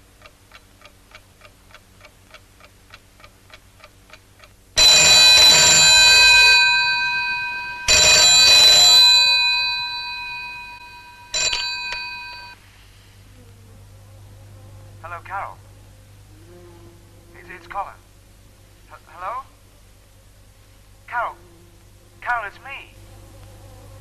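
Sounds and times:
clock ticking: 0.0 - 5.5
telephone bell ringing: 4.8 - 12.6.

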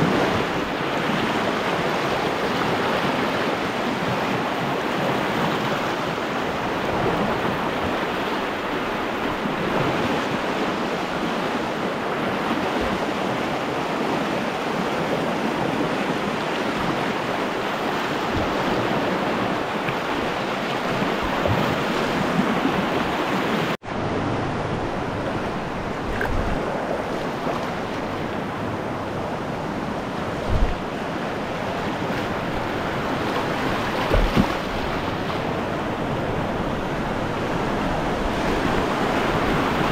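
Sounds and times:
river water rushing: 0.0 - 39.9
wind on microphone: 0.0 - 39.9
low thumps: 30.4 - 30.9.

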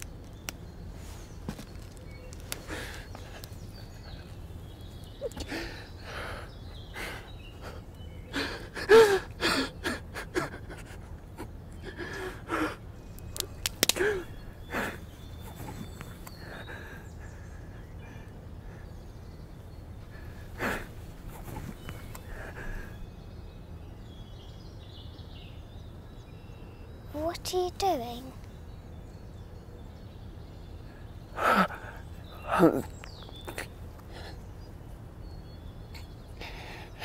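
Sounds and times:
man sobbing: 7.0 - 12.9, 31.4 - 32.9.

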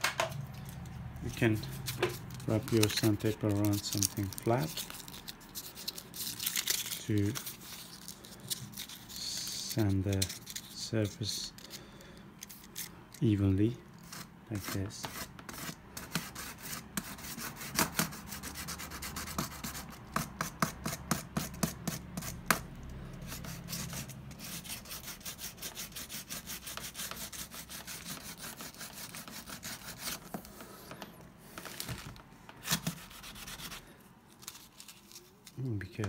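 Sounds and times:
sandpaper rasping on leather: 1.3 - 6.2, 14.0 - 22.6, 23.2 - 31.0, 32.6 - 33.9.

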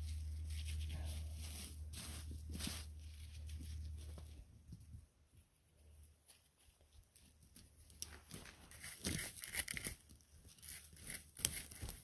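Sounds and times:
forest litter rustling and crackling: 0.0 - 4.5.

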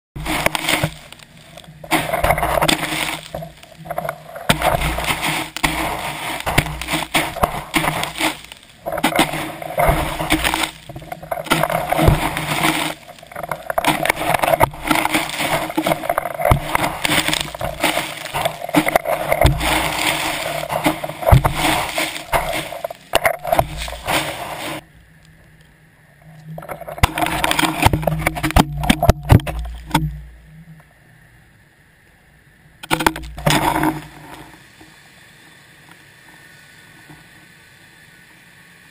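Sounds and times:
dredge scraping over seabed: 0.2 - 24.8, 26.2 - 30.3, 32.8 - 34.6
knocks and bumps: 0.2 - 24.8, 26.6 - 30.3.

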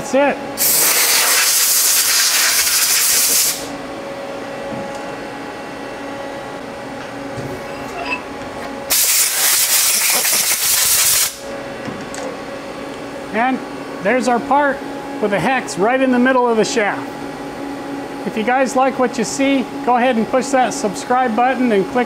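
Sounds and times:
coolant spraying hiss: 0.6 - 3.7, 8.9 - 11.4.

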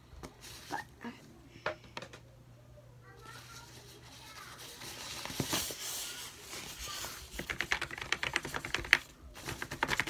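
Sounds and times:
foam rustling: 3.2 - 7.4
keyboard keys clicking: 7.4 - 9.0.

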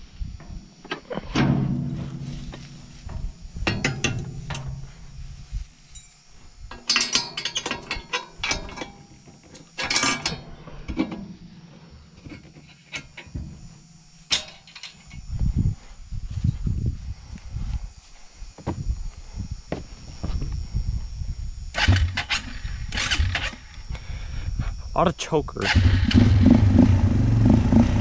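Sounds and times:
metal clinking and rattling: 5.9 - 11.3.

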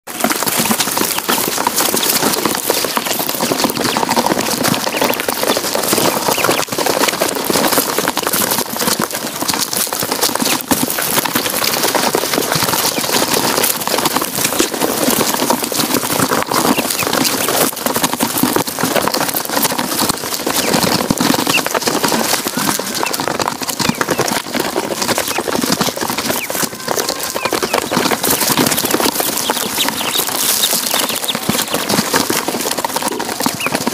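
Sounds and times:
ducklings peeping: 0.5 - 7.2, 16.4 - 17.6, 20.5 - 25.5, 26.2 - 32.2, 33.4 - 33.9.

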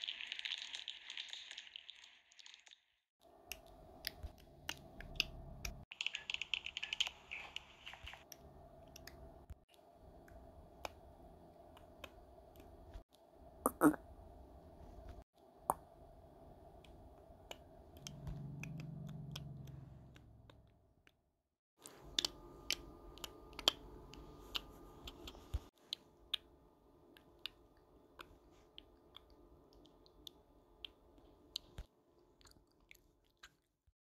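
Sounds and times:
low hum: 8.3 - 21.0.

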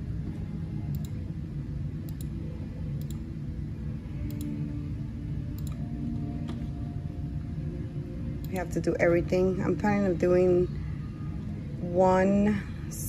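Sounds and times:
low steady hum: 0.0 - 13.0
computer mouse clicking: 0.9 - 1.2, 3.0 - 3.2, 5.6 - 5.8.

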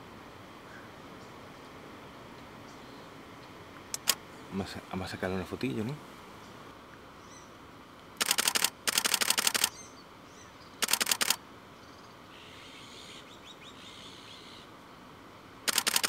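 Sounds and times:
camera shutter rapid clicks: 4.0 - 4.2, 8.2 - 9.8, 10.8 - 11.4, 15.7 - 16.0.

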